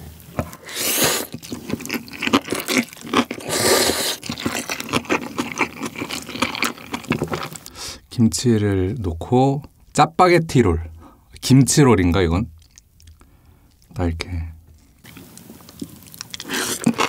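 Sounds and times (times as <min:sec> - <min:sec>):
noodles being slurped: 0:00.5 - 0:07.8, 0:15.0 - 0:17.0
wet chewing and lip smacking: 0:00.5 - 0:07.8, 0:12.5 - 0:14.0, 0:14.7 - 0:17.0.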